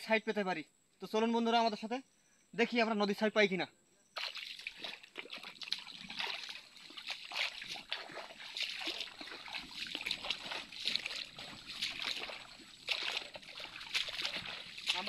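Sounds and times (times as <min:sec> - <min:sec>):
water splashing and trickling: 0:04.2 - 0:15.0.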